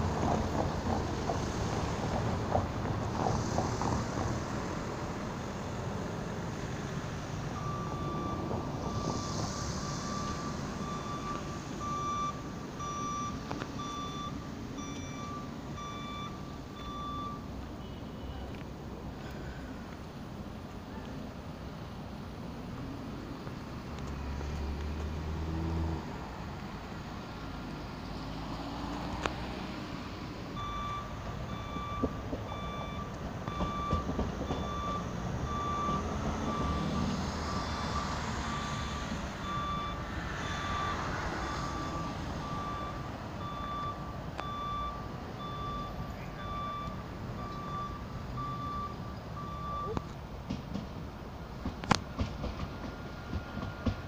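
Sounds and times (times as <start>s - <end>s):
tram running on tracks: 0.0s - 54.0s
electronic reversing beeper: 7.6s - 18.0s.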